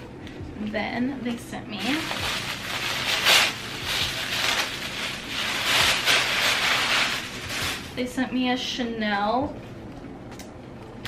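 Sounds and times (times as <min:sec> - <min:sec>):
packaging wrap rustling and crackling: 0:01.8 - 0:08.0.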